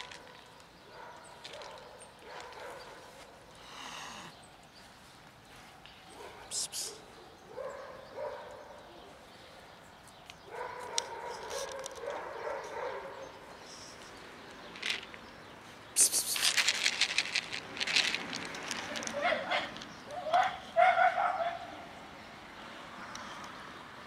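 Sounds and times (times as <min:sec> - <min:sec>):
dog barking rapidly: 0:10.5 - 0:13.2, 0:19.1 - 0:21.7.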